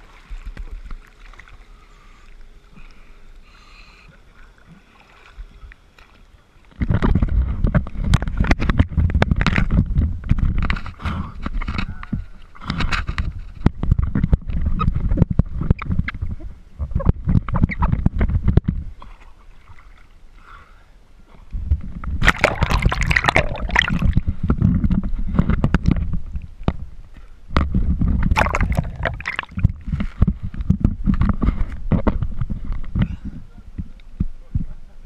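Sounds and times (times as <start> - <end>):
sea water sloshing and splashing: 0.0 - 3.1, 4.2 - 16.4, 17.1 - 20.2, 21.8 - 26.7, 27.6 - 32.8
underwater gurgling: 12.2 - 19.7, 21.6 - 27.0, 27.6 - 33.9.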